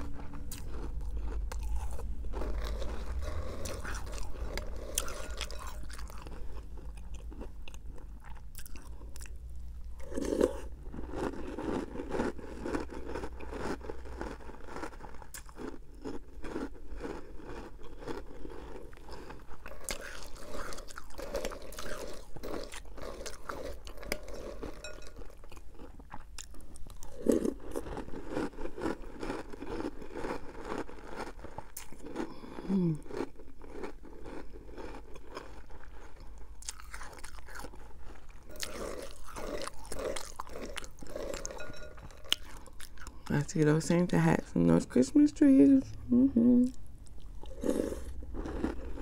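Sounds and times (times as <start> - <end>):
chewing cereal: 0.0 - 45.0, 46.6 - 49.0
metal spoon in glass bowl: 24.1 - 25.4, 41.3 - 42.7.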